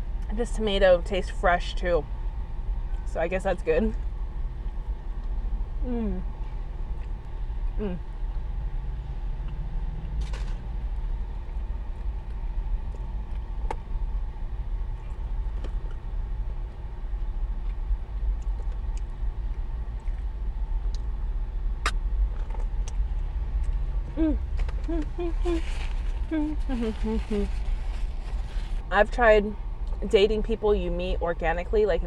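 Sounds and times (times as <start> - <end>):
truck engine idling: 22.3 - 29.7
short rustle: 25.4 - 28.8.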